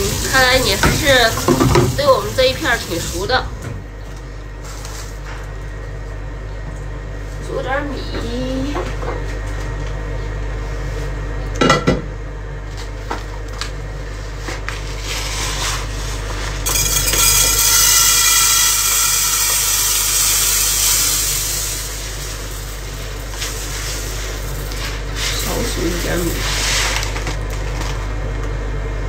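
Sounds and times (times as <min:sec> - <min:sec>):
rice pouring into metal pot: 0:16.6 - 0:27.6
pot clattering: 0:16.7 - 0:25.6.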